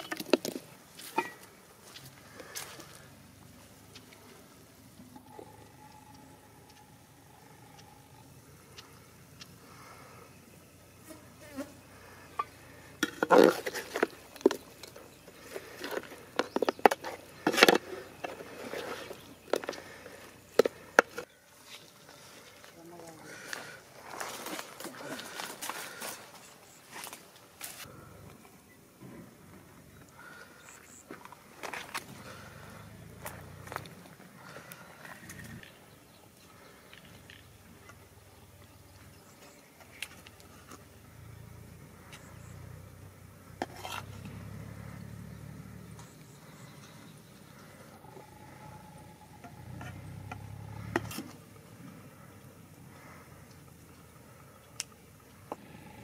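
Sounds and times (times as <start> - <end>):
metal ladle scraping metal pot: 43.6 - 44.1.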